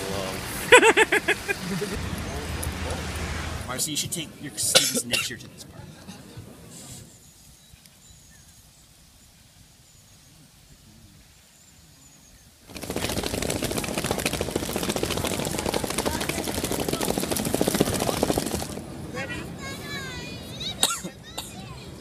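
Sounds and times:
suitcases rolling over paving stones: 12.7 - 19.8.

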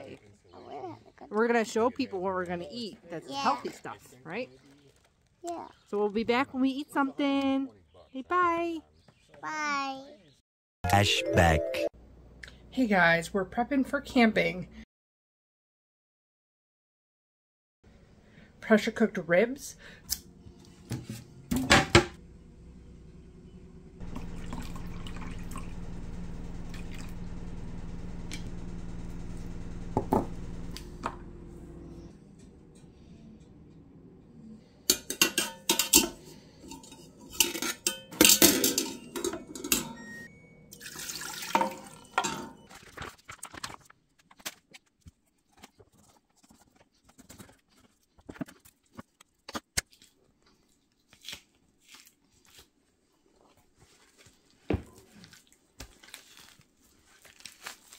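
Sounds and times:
steady hum: 22.2 - 35.1
wire rack clattering in a pot: 34.9 - 40.0, 41.4 - 42.7.

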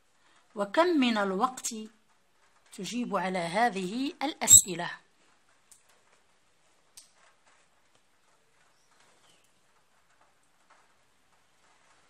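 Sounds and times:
faint soft ticks: 5.2 - 6.3, 6.9 - 12.0.

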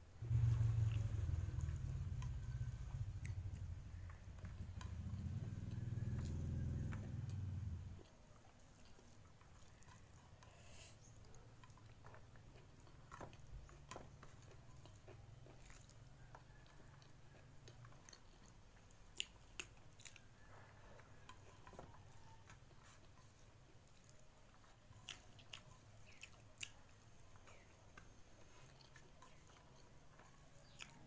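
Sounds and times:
steady low hum: 0.0 - 8.1
person chewing food: 0.2 - 31.0.

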